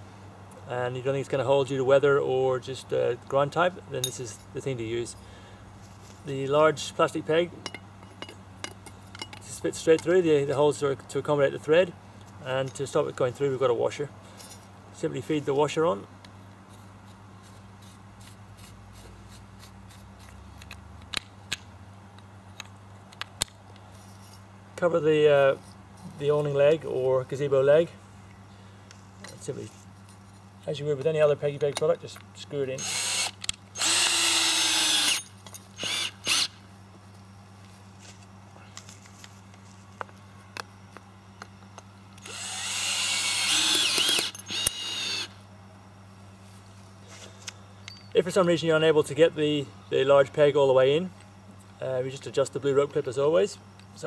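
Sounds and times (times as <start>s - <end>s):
cordless drill whining: 32.8s - 35.2s, 35.8s - 36.5s, 42.2s - 45.3s.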